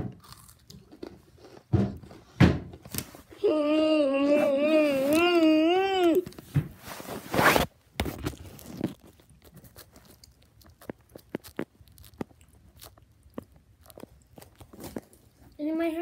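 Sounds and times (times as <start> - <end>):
crunchy chips being chewed: 0.0 - 2.3, 8.2 - 15.6.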